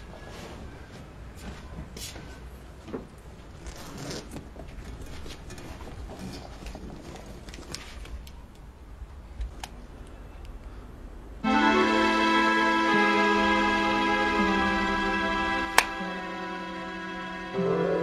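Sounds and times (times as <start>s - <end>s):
sustained organ chords: 11.4s - 18.0s.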